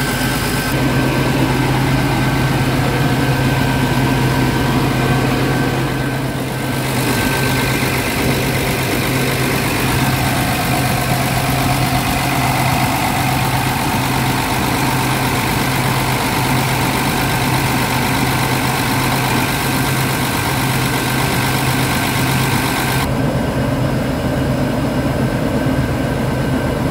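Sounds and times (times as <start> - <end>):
hissy engine layer: 0.0 - 23.9
diesel engine idling: 0.0 - 25.2.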